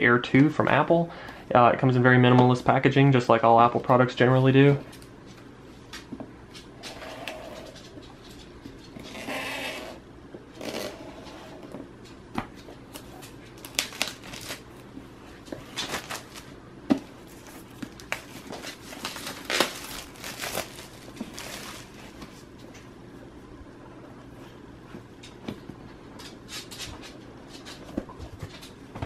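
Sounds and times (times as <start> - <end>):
plastic wrap crinkling and tearing: 12.8 - 14.8, 15.6 - 16.6, 17.2 - 22.4.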